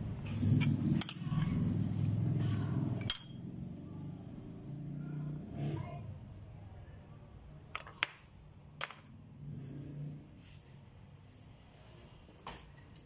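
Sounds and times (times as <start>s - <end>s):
metal spoon clinking on plate: 3.0s - 3.4s.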